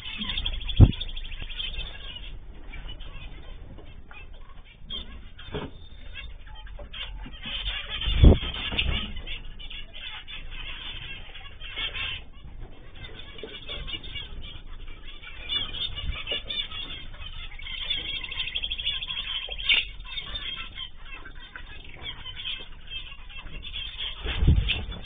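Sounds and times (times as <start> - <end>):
cage birds chattering: 0.0 - 25.0.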